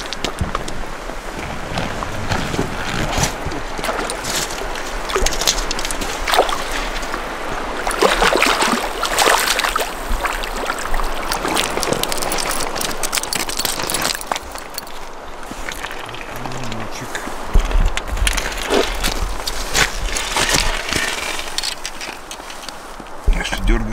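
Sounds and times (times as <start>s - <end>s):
shallow stream rushing: 0.0s - 23.3s
fish splashing in water: 1.0s - 16.6s.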